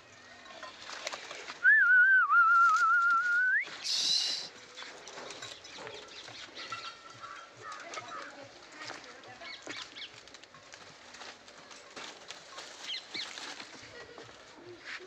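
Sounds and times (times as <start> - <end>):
person whistling a wavering note: 1.6 - 3.7.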